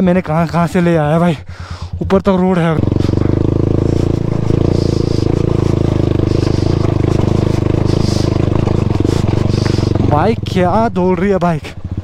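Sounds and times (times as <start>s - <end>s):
motorcycle engine at low revs: 0.0s - 12.0s
stones scraping under tyres: 2.8s - 10.4s.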